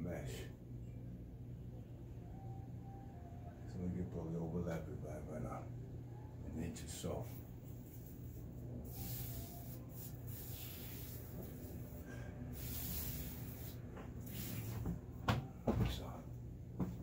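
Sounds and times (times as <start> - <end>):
low steady hum: 0.0 - 17.0
hands rubbing wall mesh: 8.9 - 12.0.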